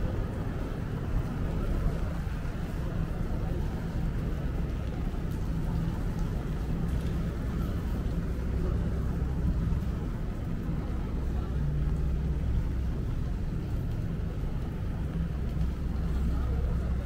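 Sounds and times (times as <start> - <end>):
city street rumble: 0.0 - 17.0.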